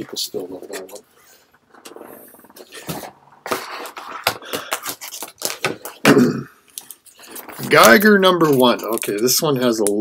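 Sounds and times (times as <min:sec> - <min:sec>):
comic books rustling: 0:01.7 - 0:06.1, 0:07.0 - 0:09.6.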